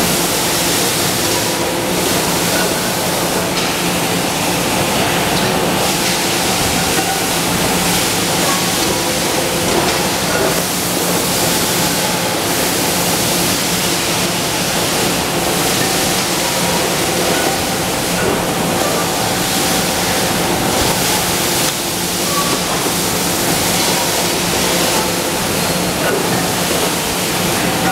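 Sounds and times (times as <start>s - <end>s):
conveyor and press machinery: 0.0s - 27.9s.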